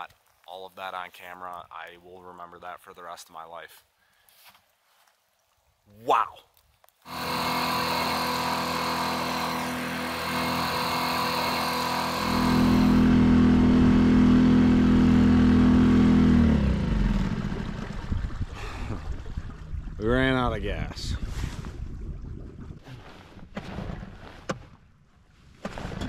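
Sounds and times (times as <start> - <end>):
outboard motor running: 7.1 - 19.7.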